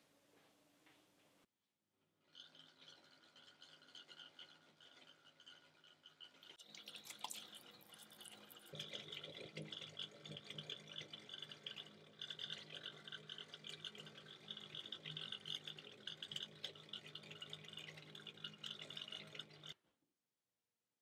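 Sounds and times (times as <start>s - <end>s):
tap water running into sink: 6.6s - 10.6s
hands washing under water: 6.7s - 8.7s.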